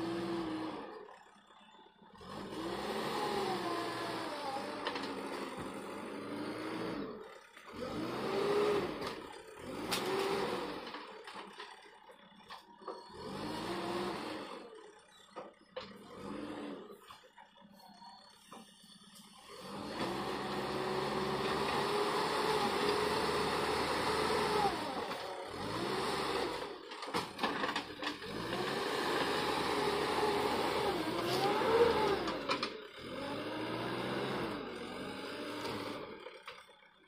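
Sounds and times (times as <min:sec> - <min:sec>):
diesel engine working under load: 0:00.0 - 0:37.0.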